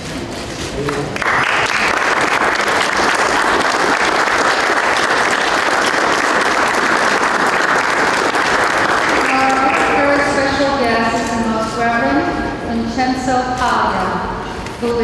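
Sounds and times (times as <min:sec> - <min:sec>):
audience applauding: 0:00.8 - 0:10.5.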